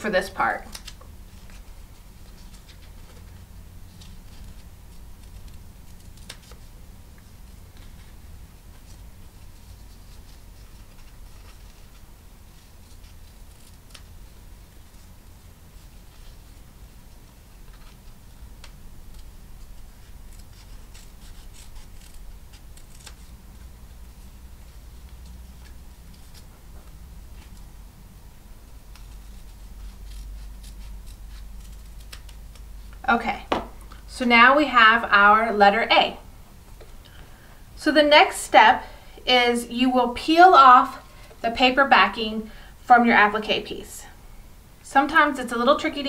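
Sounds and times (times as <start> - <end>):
scissors snipping fabric: 20.3 - 23.3, 29.0 - 33.0.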